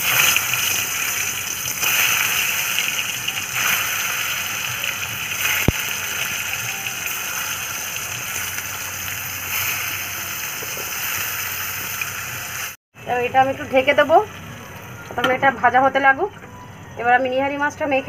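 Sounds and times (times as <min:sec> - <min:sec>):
vegetables sizzling in hot oil: 0:00.0 - 0:12.8.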